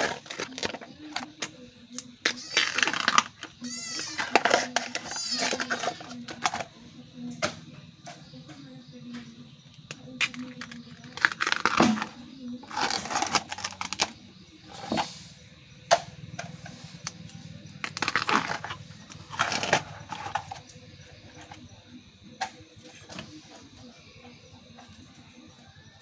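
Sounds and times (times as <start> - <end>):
bamboo sheaths ripping: 11.2 - 12.1
sharp cracks: 17.8 - 19.9.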